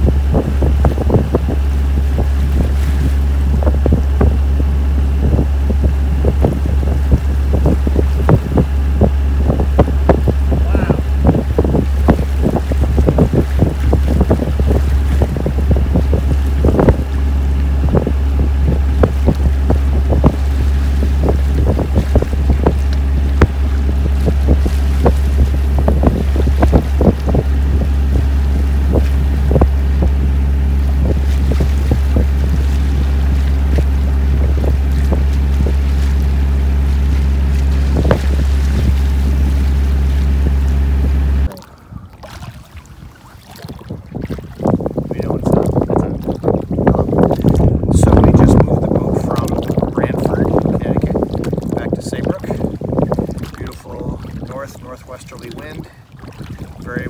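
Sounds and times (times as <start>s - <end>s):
steady low hum: 0.0s - 57.0s
water slapping along hull: 0.0s - 57.0s
wind buffeting microphone: 0.0s - 57.0s.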